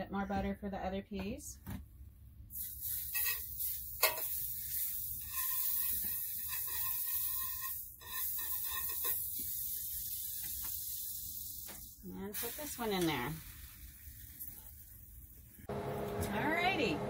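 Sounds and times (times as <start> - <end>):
butter sizzling in skillet: 2.5 - 15.7
knife scraping pan: 5.2 - 9.2.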